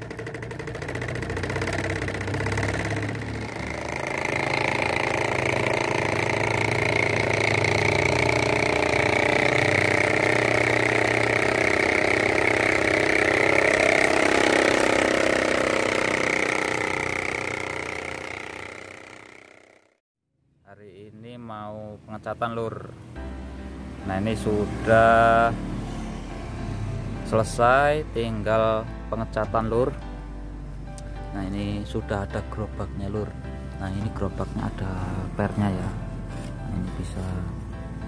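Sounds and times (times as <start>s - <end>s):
diesel engine chugging: 0.0s - 19.8s.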